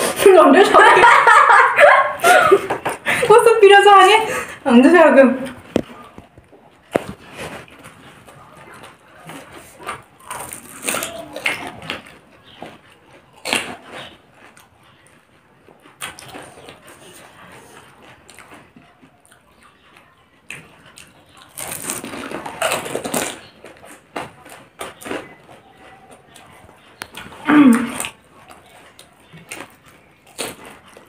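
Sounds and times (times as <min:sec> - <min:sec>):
wet chewing mouth noises: 0:05.4 - 0:31.0
crisp shells crunching: 0:21.5 - 0:24.0.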